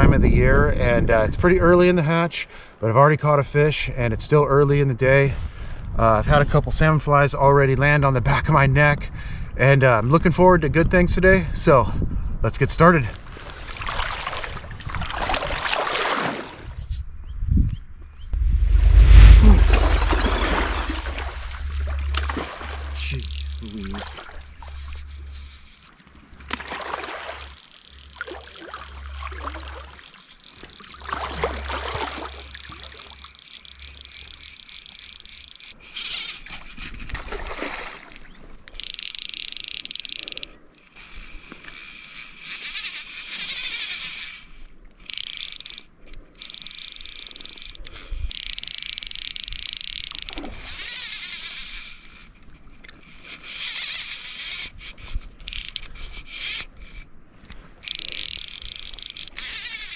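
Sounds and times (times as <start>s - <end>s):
wind rumbling on microphone: 0.0s - 1.8s, 10.4s - 15.6s, 16.6s - 25.8s
fishing reel drag ratcheting: 19.0s - 37.2s, 38.1s - 59.9s.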